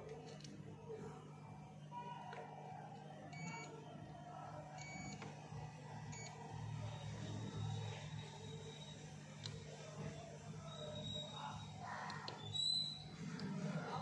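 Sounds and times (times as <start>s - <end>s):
multimeter beeps: 3.3s - 3.8s, 4.8s - 5.3s, 6.0s - 9.6s.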